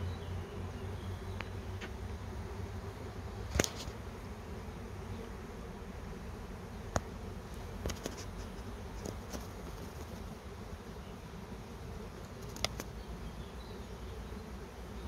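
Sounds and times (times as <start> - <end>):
bee swarm buzzing: 0.0 - 15.0
sharp clicks: 12.4 - 12.9.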